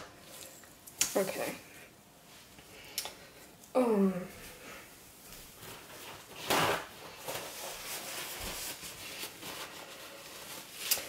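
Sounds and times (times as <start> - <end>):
paper towel rustling: 5.2 - 11.0.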